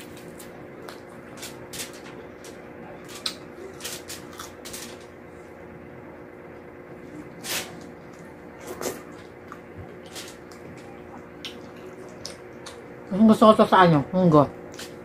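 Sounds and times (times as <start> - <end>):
faint hum: 0.0 - 15.0
wet chewing and lip smacks: 10.4 - 12.9.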